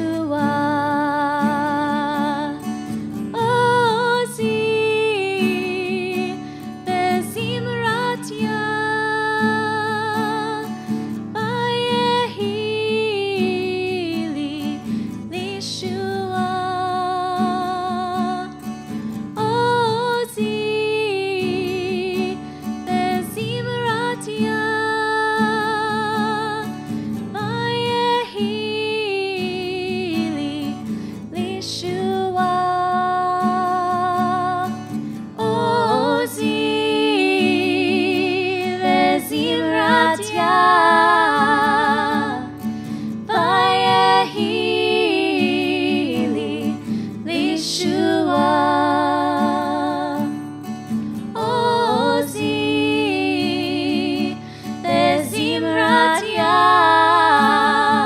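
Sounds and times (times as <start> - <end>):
woman singing with vibrato: 0.0 - 18.6, 19.4 - 50.5, 51.3 - 58.0
acoustic guitar: 0.0 - 58.0.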